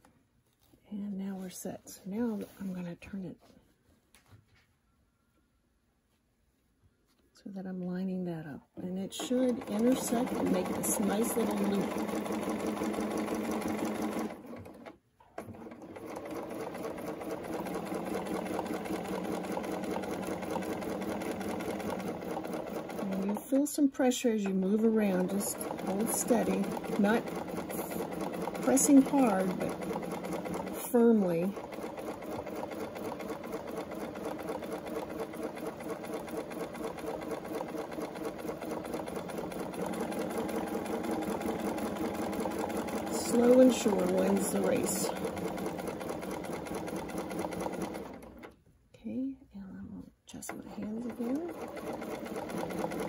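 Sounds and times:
sewing machine stitching: 8.8 - 48.6, 50.3 - 53.0.

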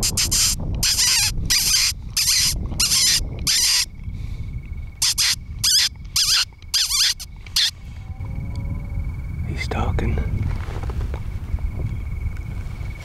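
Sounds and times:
high wavering squeaks: 0.0 - 3.9, 5.0 - 8.5.

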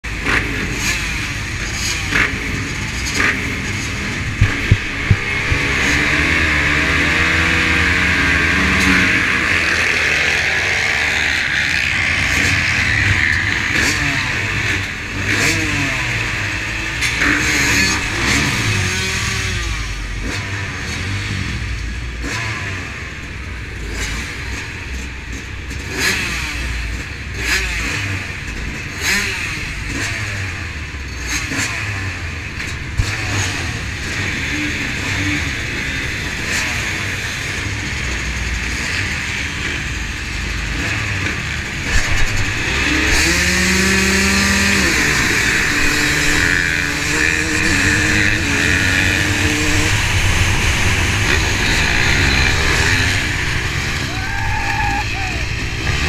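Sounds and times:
dirt bikes idling and revving: 0.0 - 56.0
short thumps: 4.1 - 6.4.

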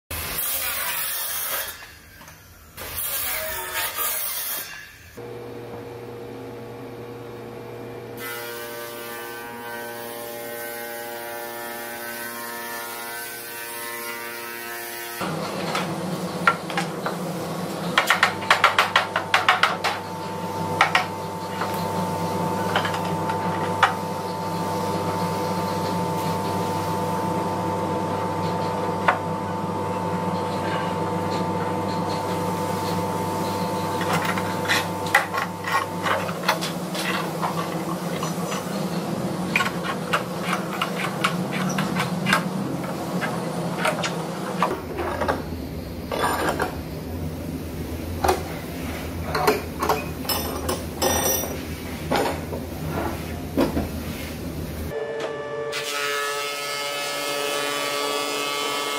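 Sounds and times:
woodworking machine humming: 5.2 - 48.4, 54.9 - 58.9
circular saw cutting wood: 54.9 - 58.9.

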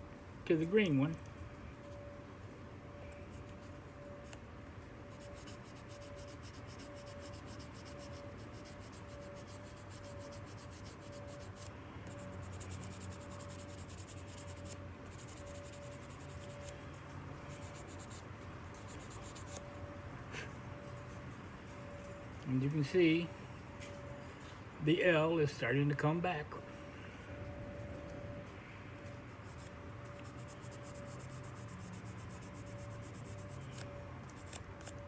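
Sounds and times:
sanding pad scratching: 5.1 - 16.8, 17.5 - 19.6, 29.4 - 34.9.

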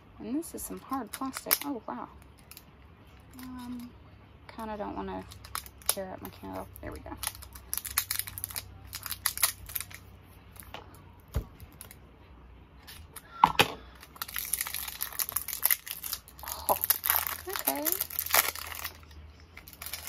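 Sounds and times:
plastic wrapping crackling: 0.7 - 3.9, 5.1 - 12.0, 13.9 - 20.0.

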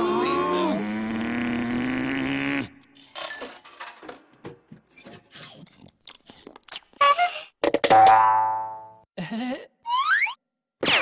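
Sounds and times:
cartoon character groaning: 0.0 - 2.6.

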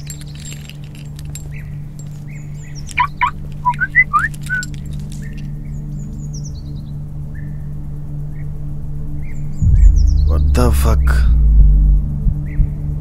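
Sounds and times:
birds chirping: 0.0 - 7.0
steady low hum: 0.0 - 13.0.

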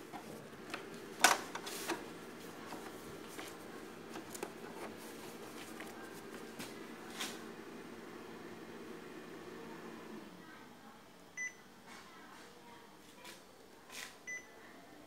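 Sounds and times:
photocopier humming: 0.0 - 10.4.

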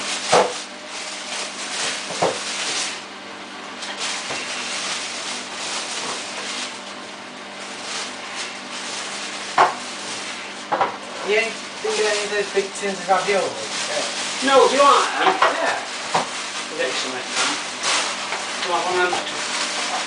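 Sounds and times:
washing machine spinning: 0.0 - 20.0.

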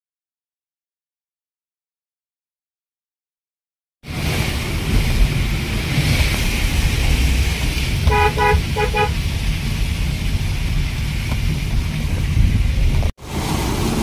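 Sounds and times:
car interior road rumble: 4.1 - 14.0
car horn tooting: 8.0 - 9.2.

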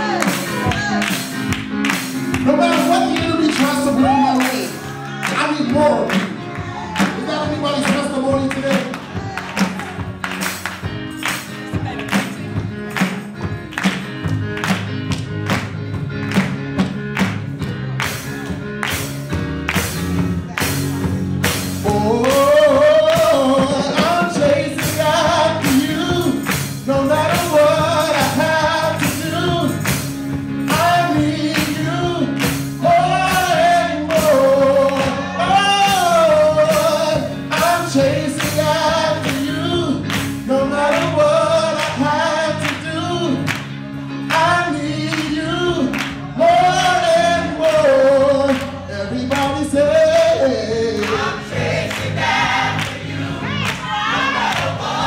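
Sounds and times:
instrumental backing with beat: 0.0 - 55.0
gospel choir singing: 2.6 - 10.2, 21.8 - 29.8, 30.7 - 43.4, 44.4 - 55.0.

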